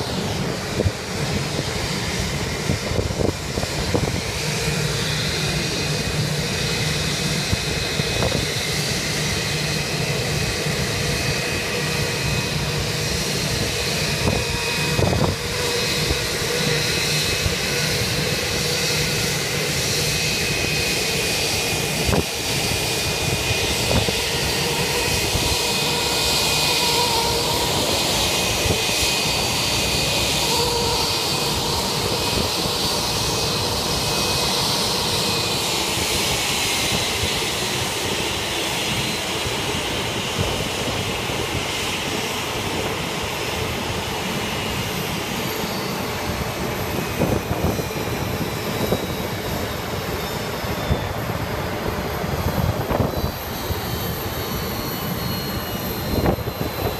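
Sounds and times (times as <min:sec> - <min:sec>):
high engine whine: 0:00.0 - 0:56.9
jet engines roaring: 0:00.0 - 0:56.9.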